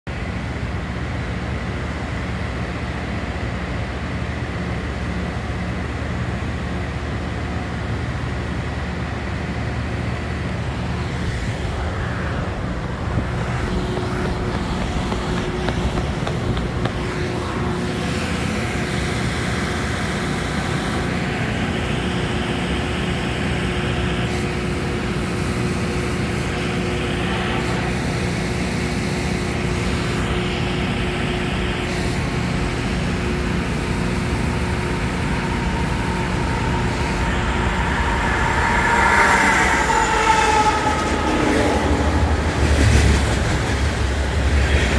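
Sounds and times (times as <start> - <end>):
freight train wheels clattering on rails: 13.3 - 18.1, 33.9 - 44.9.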